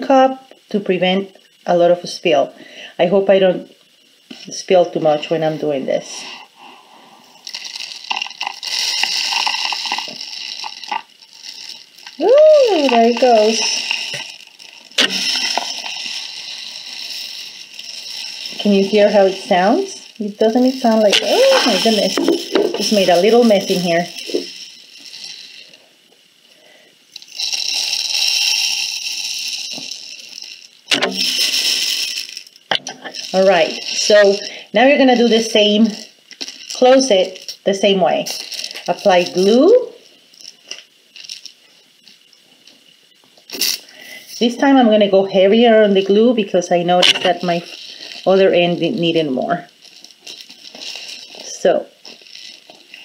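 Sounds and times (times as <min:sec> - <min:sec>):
rice pouring into a tube: 0:02.7 - 0:53.0.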